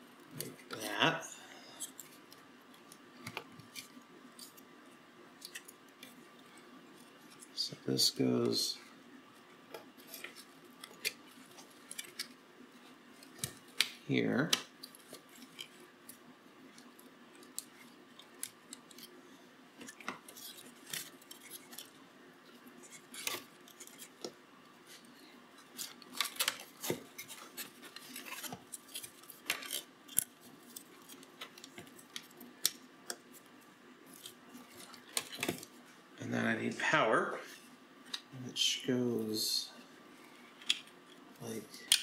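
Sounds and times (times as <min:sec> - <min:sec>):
hands handling plastic parts: 0:19.8 - 0:35.8.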